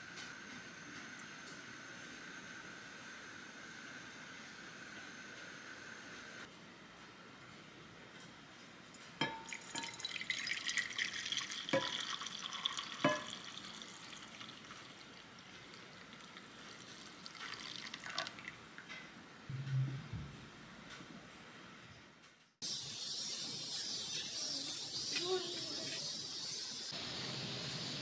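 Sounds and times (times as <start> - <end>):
liquid pouring and splashing: 9.4 - 18.9.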